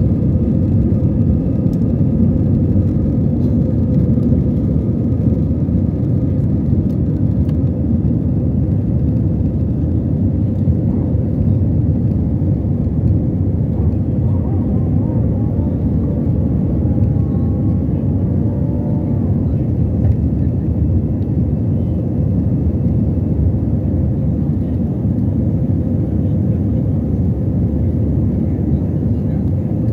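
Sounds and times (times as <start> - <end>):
jet engines roaring in cabin: 0.0 - 29.9
steady cabin hum: 10.0 - 24.8.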